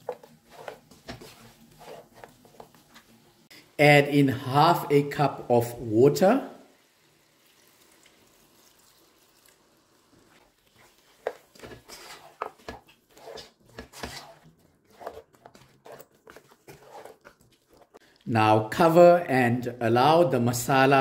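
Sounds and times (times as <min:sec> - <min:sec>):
wooden spoon scraping a pan: 0:00.0 - 0:03.3, 0:10.3 - 0:18.2
water poured into a pan: 0:06.7 - 0:10.4.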